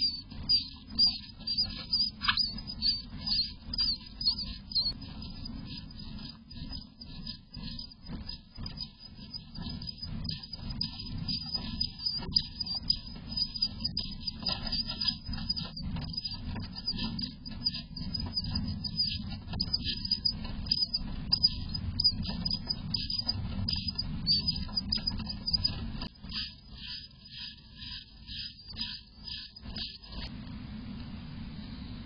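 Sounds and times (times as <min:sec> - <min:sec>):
steady low rumble: 0:30.2 - 0:32.0.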